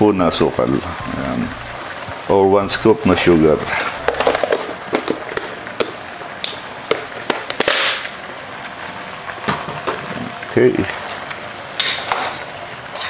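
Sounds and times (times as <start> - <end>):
chicken sizzling in pot: 0.0 - 13.0
crackles and pops: 3.7 - 12.8.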